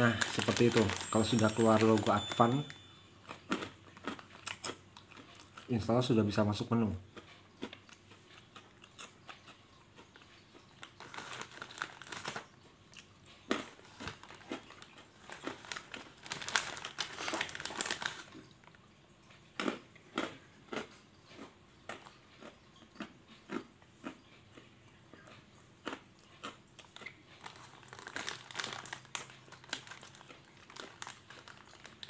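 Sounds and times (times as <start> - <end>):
crinkling rustles: 0.0 - 5.8, 10.6 - 12.6, 13.5 - 18.8, 26.8 - 32.0.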